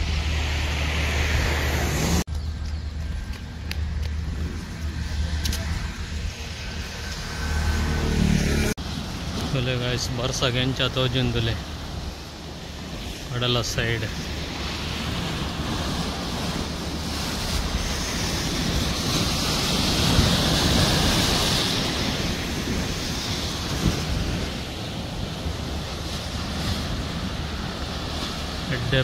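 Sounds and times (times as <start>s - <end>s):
wind buffeting microphone: 8.8s - 29.0s
waves breaking against rocks: 8.9s - 29.0s.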